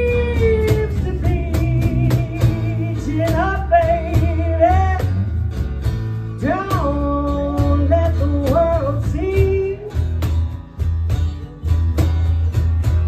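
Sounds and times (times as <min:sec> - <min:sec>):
woman singing: 0:00.0 - 0:05.2, 0:06.4 - 0:10.1
bass line: 0:00.0 - 0:13.0
strummed acoustic guitars: 0:00.0 - 0:13.0.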